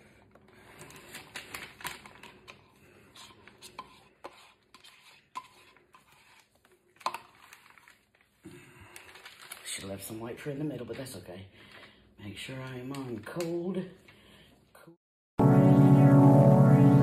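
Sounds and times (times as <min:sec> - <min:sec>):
stir stick scraping paper cup: 0:02.7 - 0:07.9.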